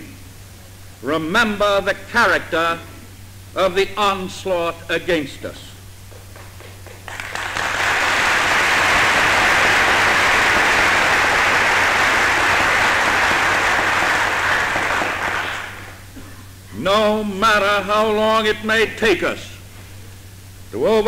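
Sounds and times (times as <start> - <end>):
steady low hum: 0.0 - 21.0
large crowd applauding: 6.1 - 16.1.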